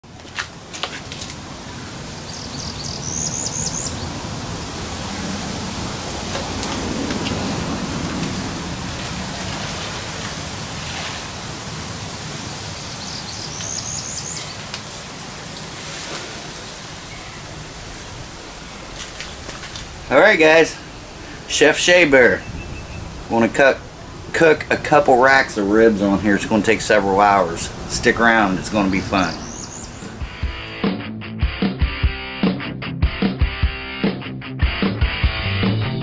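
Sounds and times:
steady outdoor hiss: 0.0 - 30.8
songbird singing: 1.6 - 10.4, 11.8 - 15.8, 16.4 - 30.8.

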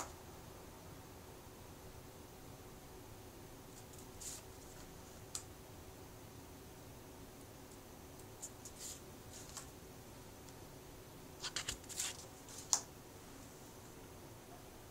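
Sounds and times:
faint steady hiss: 0.0 - 14.9
paper cards rustling and flicking: 3.8 - 5.4, 11.4 - 12.9.

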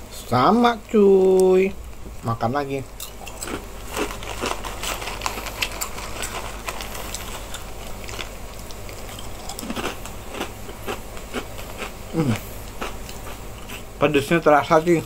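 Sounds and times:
crackers being crunched and chewed: 3.0 - 13.9
foil snack bag crinkling: 3.2 - 11.9.

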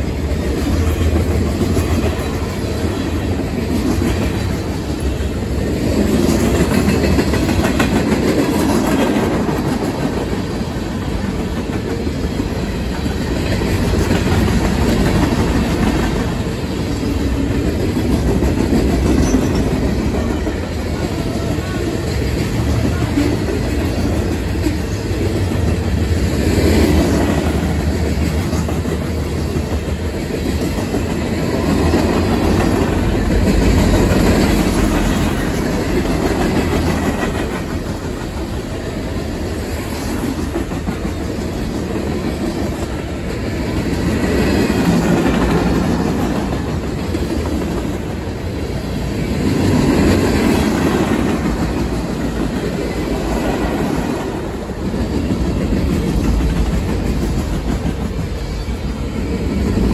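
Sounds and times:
clickety-clack over rail joints: 0.0 - 59.9
train wheels rumbling on rail: 0.0 - 59.9.

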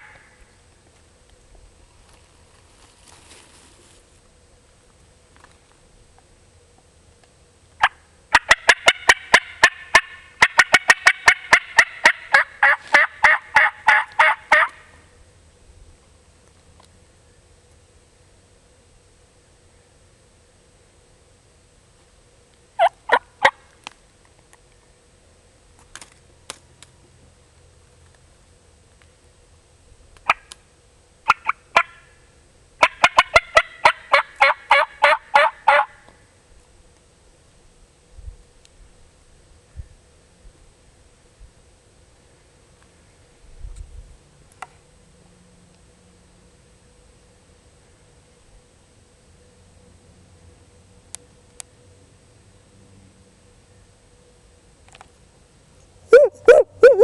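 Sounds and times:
turkey call yelps and clucks: 0.0 - 0.4, 7.8 - 14.8, 22.8 - 23.6, 31.3 - 32.1, 32.8 - 36.0, 56.1 - 57.0.

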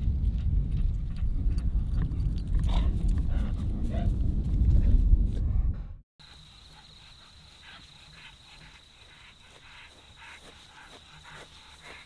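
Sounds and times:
insect trilling: 6.2 - 12.0.

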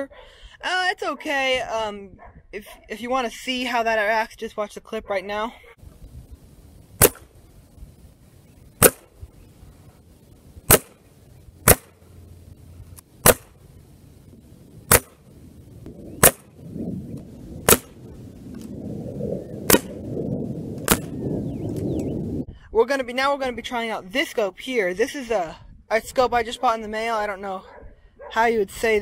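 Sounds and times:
low rumbling: 5.8 - 22.6
air rifle shots cracking: 7.0 - 7.4, 8.8 - 9.2, 10.6 - 12.0, 13.2 - 13.6, 14.8 - 15.2, 16.2 - 16.6, 17.6 - 18.1, 19.6 - 20.0, 20.8 - 21.2.

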